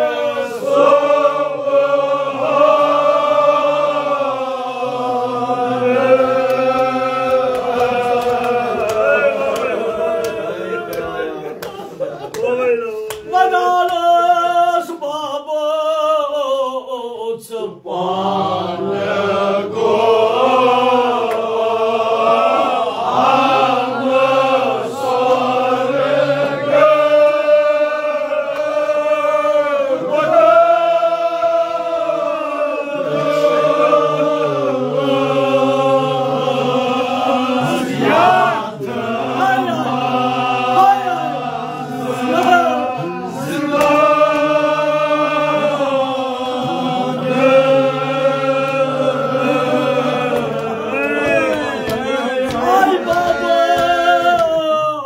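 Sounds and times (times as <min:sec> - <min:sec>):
men chanting in unison: 0:00.0 - 0:55.0
man leading a chant: 0:08.7 - 0:17.9, 0:39.0 - 0:43.4, 0:50.8 - 0:55.0.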